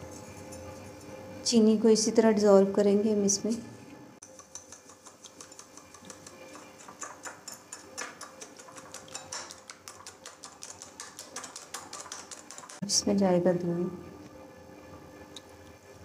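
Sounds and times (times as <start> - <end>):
whisk clicking in glass bowl: 4.2 - 12.8.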